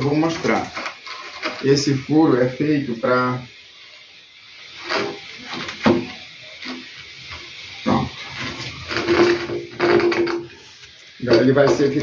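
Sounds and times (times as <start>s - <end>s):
squeaky pipe turning in fitting: 8.3s - 10.6s
plastic pipe knocking and scraping: 8.9s - 10.5s.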